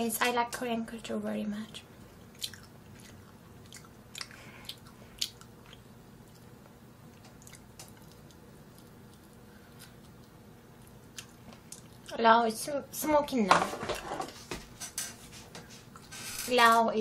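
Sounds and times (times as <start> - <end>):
faint low hum: 0.0 - 17.0
soft chewing: 1.7 - 12.2, 15.3 - 16.1.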